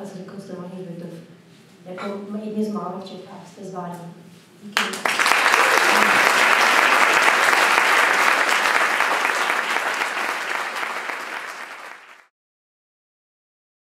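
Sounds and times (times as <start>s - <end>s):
audience applauding: 4.8s - 12.3s.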